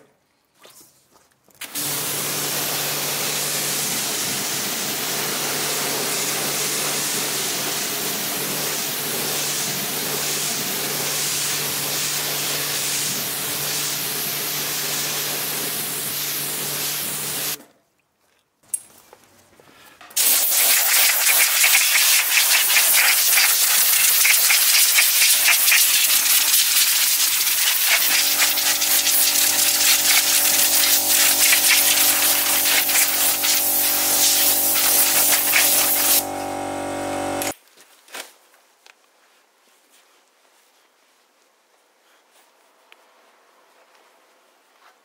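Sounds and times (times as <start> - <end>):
compressed air blow gun hissing: 1.7 - 17.6, 20.2 - 37.5
steady hum: 27.4 - 37.5.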